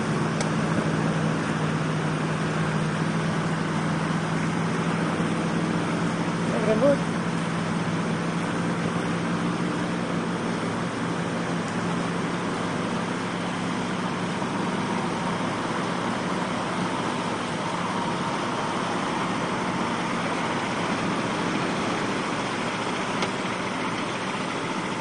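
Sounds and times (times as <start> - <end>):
truck engine running under load: 0.0 - 25.0
wind: 0.0 - 25.0.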